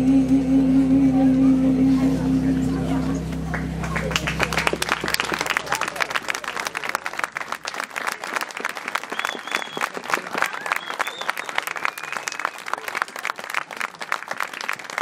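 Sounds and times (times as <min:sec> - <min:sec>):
audience applauding: 0:03.5 - 0:15.0.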